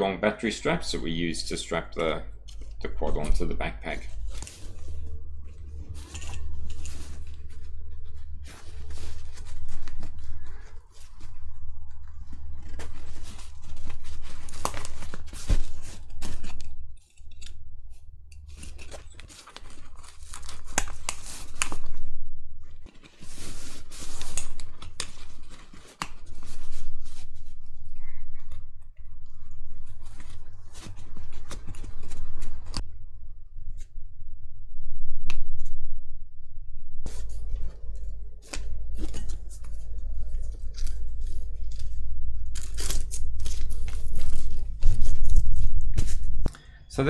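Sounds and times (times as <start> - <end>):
steady low hum: 0.0 - 47.0
fabric rustling and scraping: 2.5 - 17.0, 17.9 - 27.9, 37.0 - 46.4.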